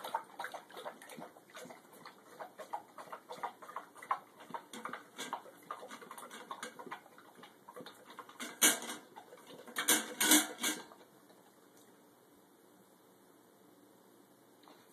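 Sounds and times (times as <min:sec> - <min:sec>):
metal bowl clattering: 0:02.3 - 0:11.0.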